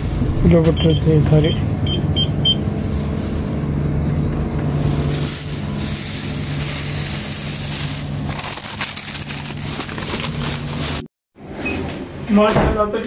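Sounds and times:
steady low hum: 0.0 - 11.1
plastic bags crinkling: 2.6 - 3.8, 4.7 - 11.1.

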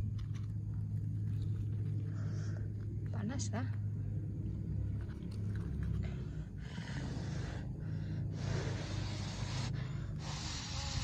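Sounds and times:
puffs of breath blowing: 6.6 - 11.0.

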